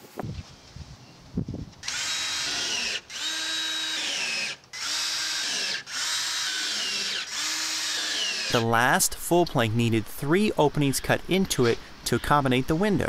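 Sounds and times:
cordless drill driving screws: 1.8s - 8.6s.

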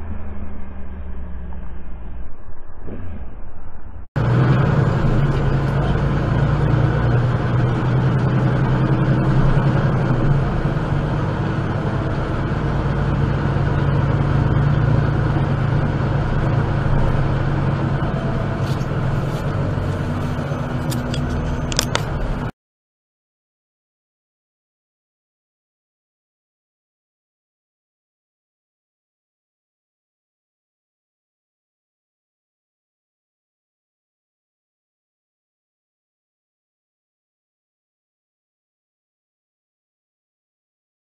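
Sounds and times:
vehicle engine droning: 0.0s - 22.6s.

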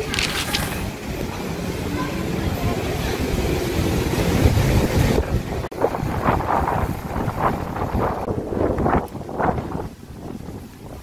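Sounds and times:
strong wind buffeting microphone: 0.0s - 11.0s.

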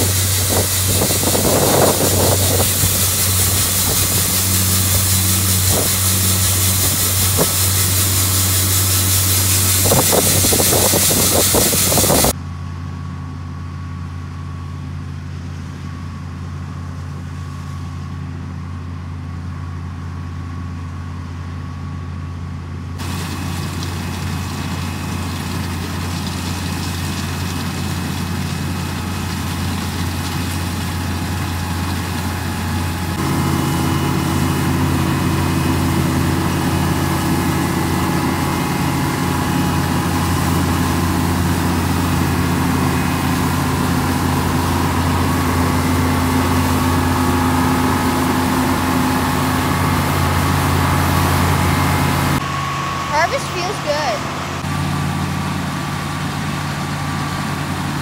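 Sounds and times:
threshing and cutting machinery: 0.0s - 12.3s
combine engine drone: 0.0s - 58.0s.

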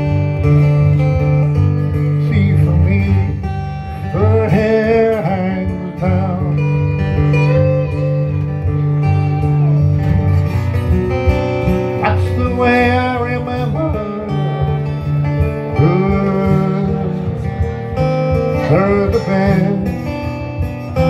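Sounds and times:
lap slide guitar: 0.0s - 21.0s.

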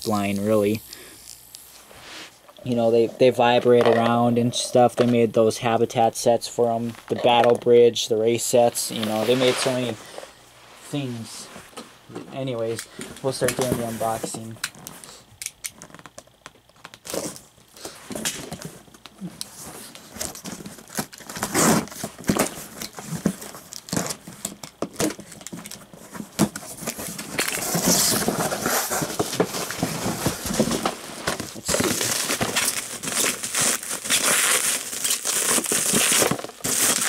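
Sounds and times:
bubble wrap crinkling: 19.2s - 37.0s.

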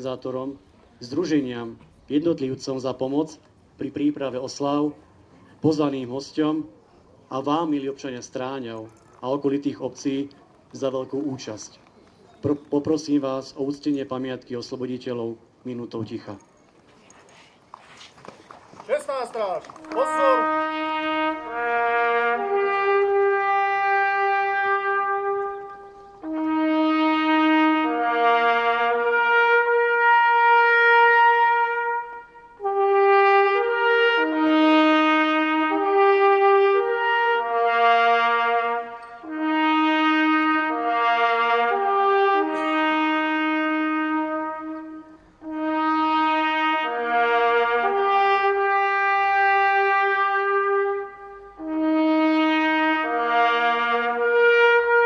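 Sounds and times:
trumpet playing slow melody: 19.7s - 55.0s.

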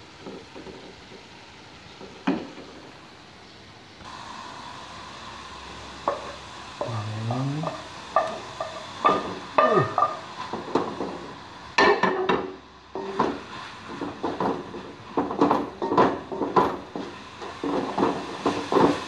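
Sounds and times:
sizzling: 0.0s - 19.0s.

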